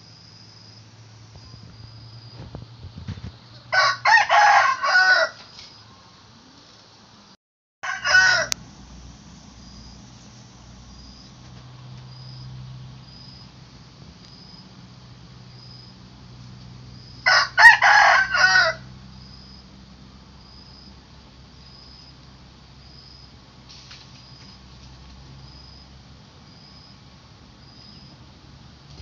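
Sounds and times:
crickets chirping faintly: 0.0s - 29.0s
rooster crowing: 3.6s - 5.6s, 7.8s - 8.6s, 17.2s - 19.0s.

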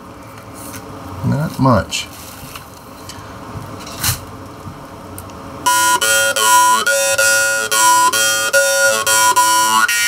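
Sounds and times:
jaw harp twanging drone: 5.6s - 10.0s.

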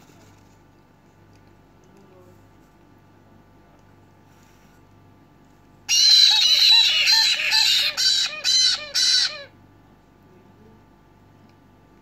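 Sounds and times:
parrot chicks begging calls: 5.9s - 9.6s.

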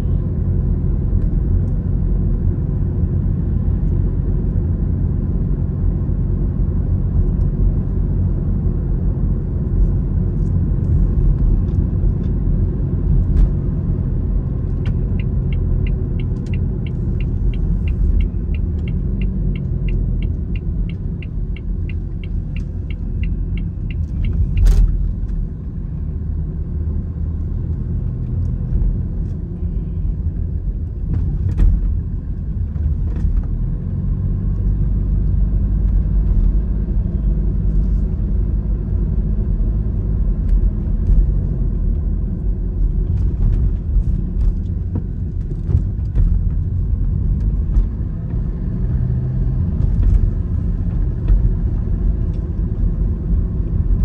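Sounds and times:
car engine and road rumble: 0.0s - 54.0s
turn signal ticking: 14.4s - 25.6s.

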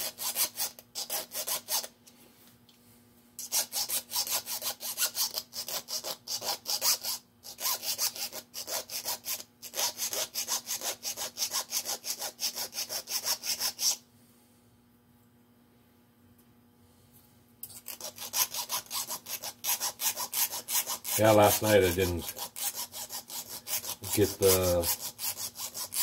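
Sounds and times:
hand file rasping on metal: 0.0s - 1.9s, 3.4s - 14.0s, 17.9s - 26.0s.

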